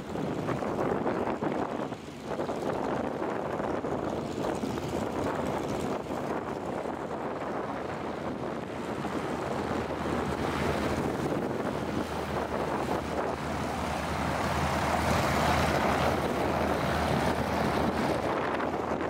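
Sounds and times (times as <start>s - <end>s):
propeller plane engine passing: 0.0s - 19.0s
wind buffeting microphone: 0.0s - 19.0s.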